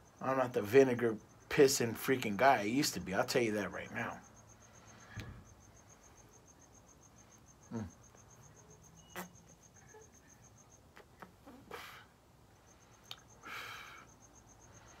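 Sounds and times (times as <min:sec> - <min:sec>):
cricket chirping: 0:00.0 - 0:15.0
person blowing out smoke: 0:11.5 - 0:12.1.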